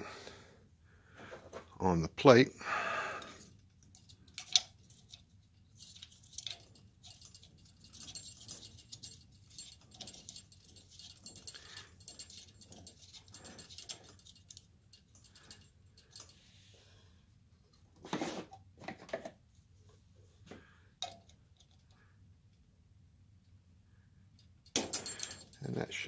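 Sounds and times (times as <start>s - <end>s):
metal clicks and scrapes: 3.2s - 16.4s.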